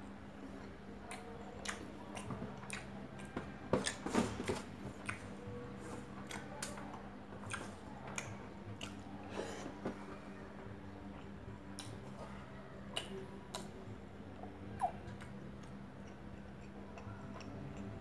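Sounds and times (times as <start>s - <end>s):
wet chewing and lip smacking: 1.0s - 4.0s, 5.0s - 5.3s, 6.2s - 9.1s, 14.4s - 18.0s.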